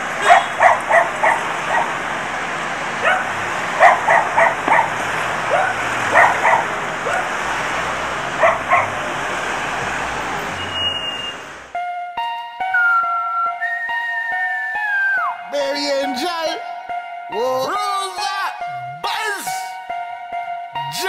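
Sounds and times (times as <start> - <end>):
dog barking: 0.2 - 2.0, 3.0 - 7.3, 8.4 - 9.0.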